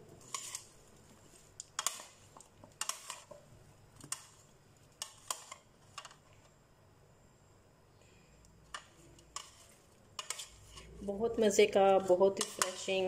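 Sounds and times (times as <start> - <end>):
plastic spoon scraping a bowl: 0.2 - 0.7, 9.0 - 11.1, 12.4 - 13.0.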